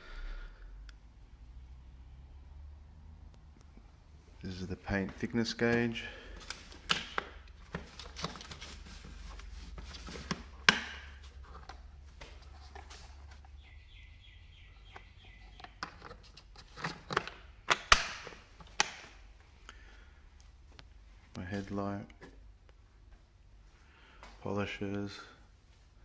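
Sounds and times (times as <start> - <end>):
plastic case latches clicking: 6.4 - 8.5, 14.9 - 19.1.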